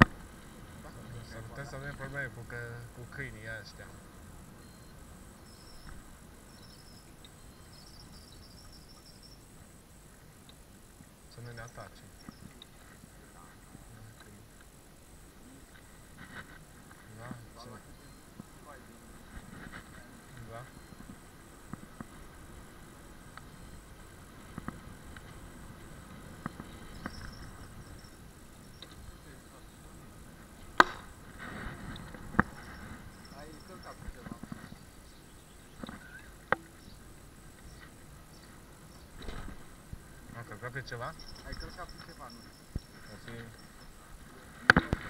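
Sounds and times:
scooter road rumble: 0:00.0 - 0:07.2, 0:15.3 - 0:40.4
faint high-pitched chirping: 0:00.0 - 0:31.2, 0:31.8 - 0:45.0
wind noise: 0:18.3 - 0:35.0
tyre and wind rumble: 0:30.3 - 0:33.3.

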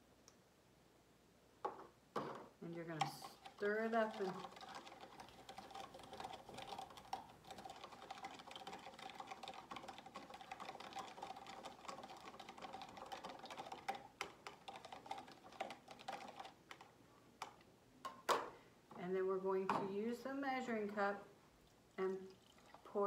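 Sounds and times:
plastic knife stirring in a cup: 0:02.6 - 0:17.6.

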